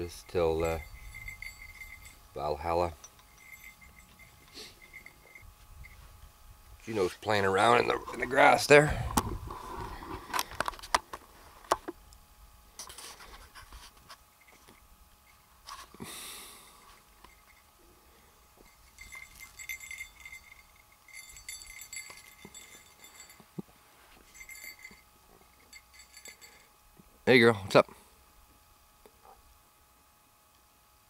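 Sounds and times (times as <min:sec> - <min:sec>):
dog collar tags jingling: 0:00.0 - 0:06.0, 0:18.6 - 0:23.6, 0:24.2 - 0:26.7.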